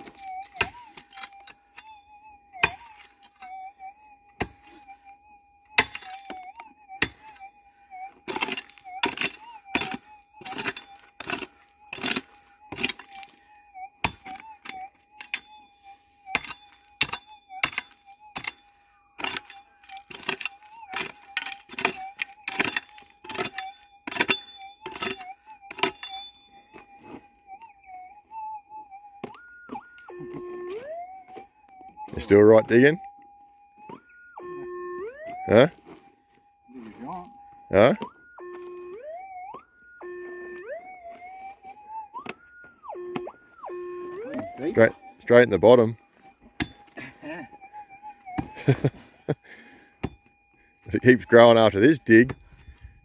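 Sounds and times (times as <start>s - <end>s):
pick striking stony gravel: 5.8s - 7.4s, 8.3s - 13.4s, 19.2s - 27.2s.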